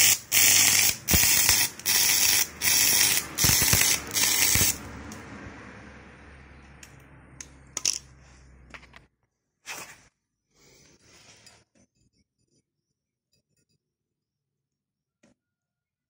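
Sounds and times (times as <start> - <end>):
welding transformer humming: 0.0 - 5.2.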